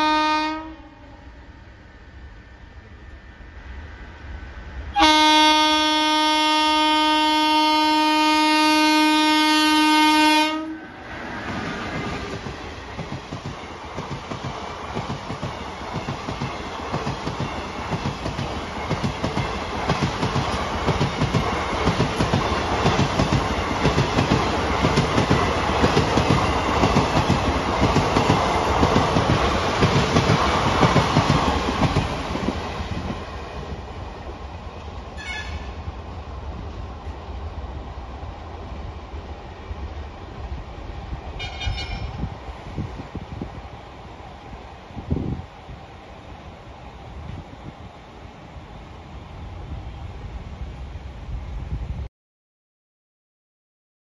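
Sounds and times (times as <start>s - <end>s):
locomotive horn blast: 0.0s - 1.0s, 5.0s - 10.9s, 35.2s - 35.8s, 41.4s - 42.2s.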